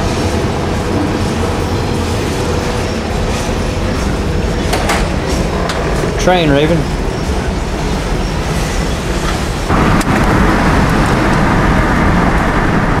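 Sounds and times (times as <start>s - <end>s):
steady rumbling: 0.0s - 13.0s
car driving on street: 9.7s - 13.0s.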